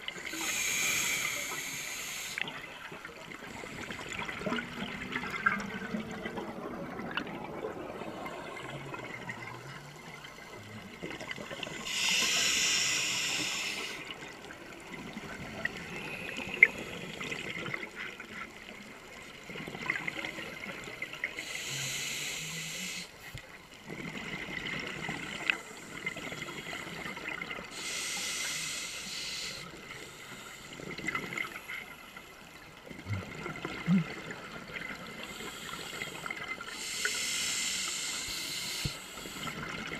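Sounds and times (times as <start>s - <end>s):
low underwater noise: 0.0s - 39.9s
scuba regulator breathing bubbles: 0.2s - 2.6s, 11.6s - 14.2s.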